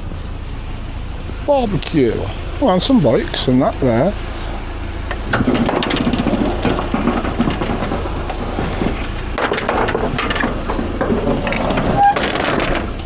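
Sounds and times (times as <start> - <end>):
steady low rumble: 0.0 - 13.0
scrap metal clattering: 5.2 - 13.0.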